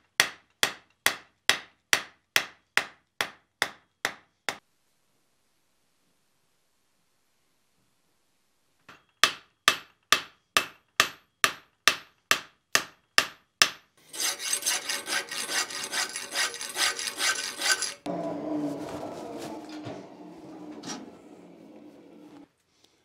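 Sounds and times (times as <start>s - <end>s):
file rasping on steel: 14.0s - 18.1s.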